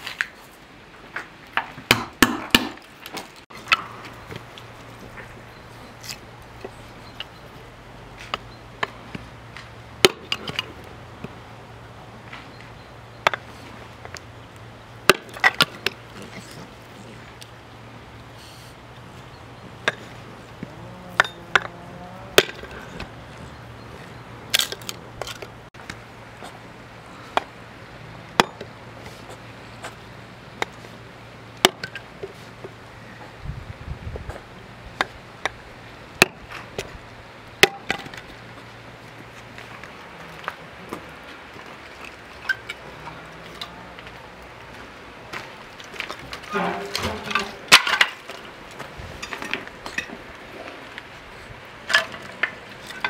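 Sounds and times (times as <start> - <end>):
hatchet striking wood: 1.6 - 2.9, 10.0 - 10.7, 15.1 - 16.0, 22.4 - 22.7, 31.6 - 32.0, 36.2 - 36.5, 37.6 - 38.2.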